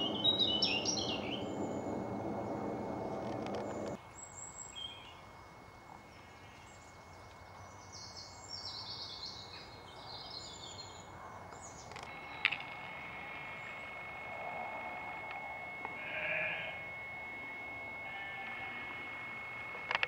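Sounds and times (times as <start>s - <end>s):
low outdoor rumble: 0.0s - 4.0s, 12.1s - 20.0s
songbirds chirping: 0.0s - 5.2s, 6.4s - 16.0s.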